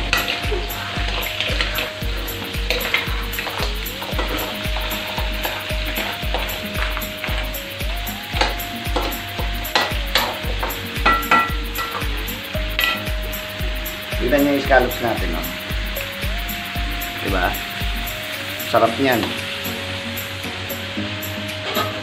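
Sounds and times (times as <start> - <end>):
scallops sizzling in a wok: 0.0 - 22.0
steady low beat: 0.0 - 22.0.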